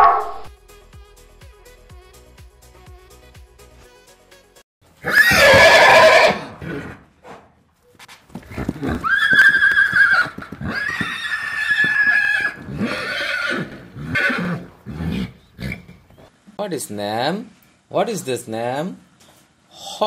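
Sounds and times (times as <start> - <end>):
horse whinnying: 5.0 - 7.0, 8.5 - 16.0.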